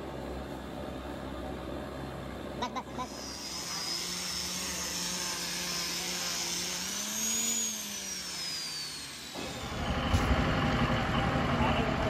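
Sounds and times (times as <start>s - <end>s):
outdoor street noise: 0.0s - 12.0s
angle grinder whine: 3.0s - 12.0s.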